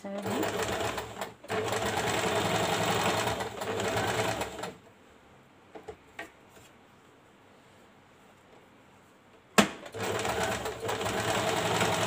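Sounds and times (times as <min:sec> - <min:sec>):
sewing machine running: 0:00.2 - 0:04.8, 0:09.9 - 0:12.0.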